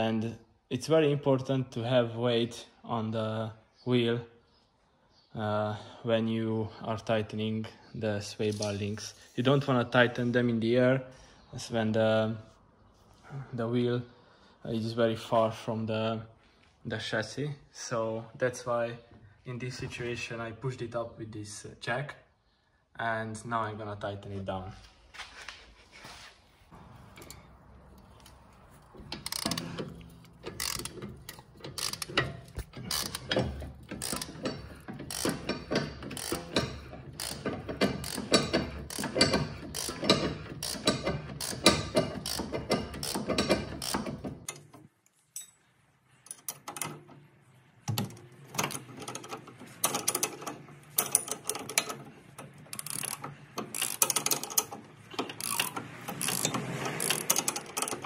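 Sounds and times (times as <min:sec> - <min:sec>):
socket ratchet clicking: 0:29.1 - 0:44.7, 0:52.8 - 0:58.0.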